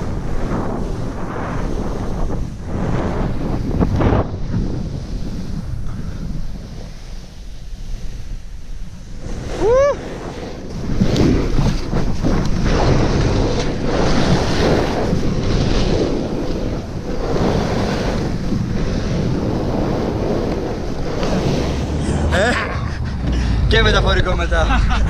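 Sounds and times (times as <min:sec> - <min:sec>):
snowboard sliding through snow: 0:00.0 - 0:23.6
wind rushing on microphone: 0:00.0 - 0:25.0
short rising and falling cry: 0:21.7 - 0:25.0.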